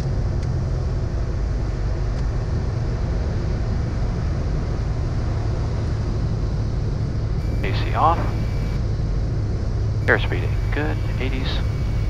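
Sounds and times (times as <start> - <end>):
aircraft engine and propeller drone: 0.0 - 12.0
airflow noise: 7.4 - 8.8, 10.0 - 12.0.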